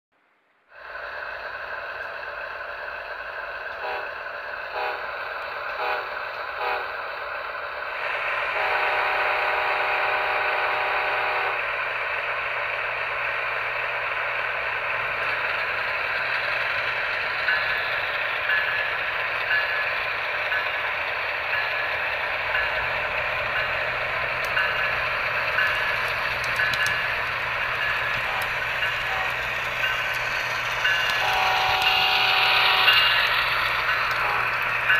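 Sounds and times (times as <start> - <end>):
model train clattering rumble: 12.3 - 34.9.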